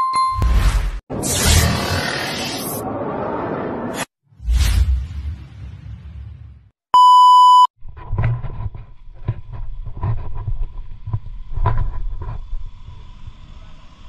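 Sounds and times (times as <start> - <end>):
test tone beep: 7.0 - 7.7.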